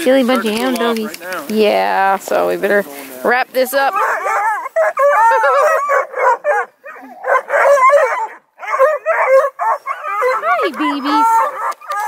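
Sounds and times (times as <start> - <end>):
hounds baying and yelping: 3.5 - 12.0.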